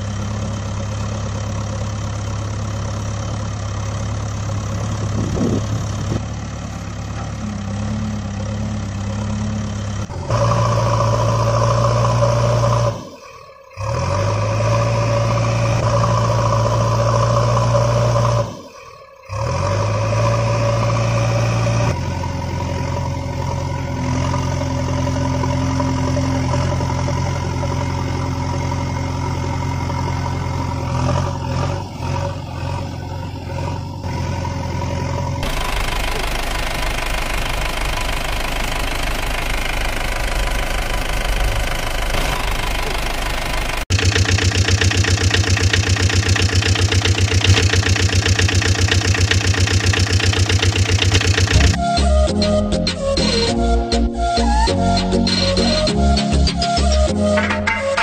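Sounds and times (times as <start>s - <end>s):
heavy vehicle engine running: 0.0s - 58.0s.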